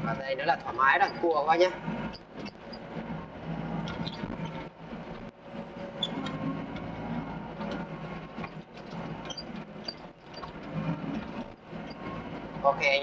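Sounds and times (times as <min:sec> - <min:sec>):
excavator diesel engine humming: 0:00.0 - 0:13.0
tracks clanking and rattling: 0:00.0 - 0:13.0.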